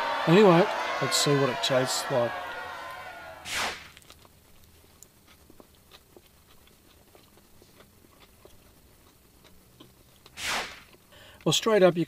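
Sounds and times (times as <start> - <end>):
faint chewing: 3.9 - 11.5.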